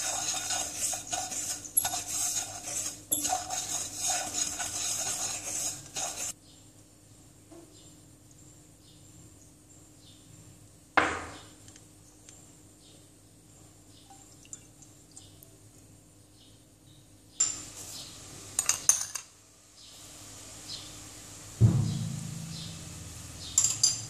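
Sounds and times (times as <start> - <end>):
spatula scraping in pan: 0.0 - 6.4
loud knock: 21.6 - 22.8.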